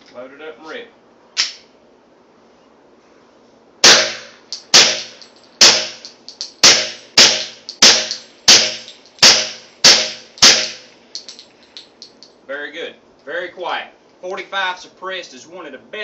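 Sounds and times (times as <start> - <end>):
suppressed pistol shots: 3.8 - 10.9.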